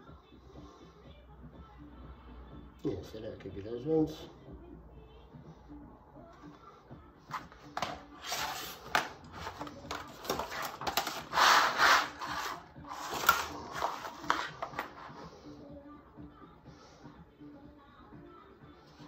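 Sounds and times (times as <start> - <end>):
plastic mats scraping on floor: 7.3 - 15.3.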